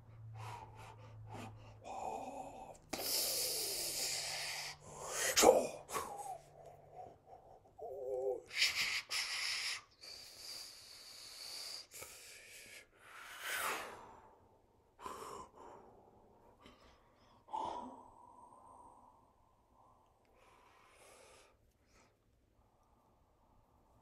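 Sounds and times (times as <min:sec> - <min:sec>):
voiced gasp: 0:00.2 - 0:12.8
man humming: 0:07.8 - 0:09.2.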